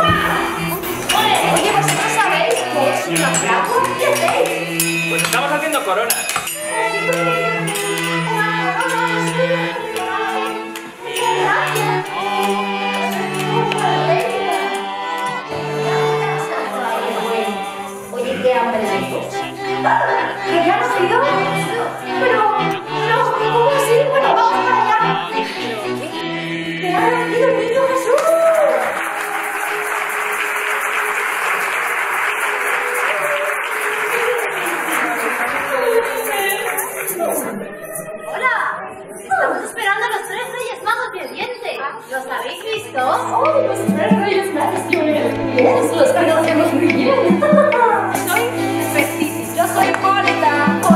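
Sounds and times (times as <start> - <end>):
women singing: 0.0 - 5.0, 6.6 - 28.9, 42.5 - 50.9
audience cheering: 28.1 - 35.8
audience applauding: 28.2 - 37.6.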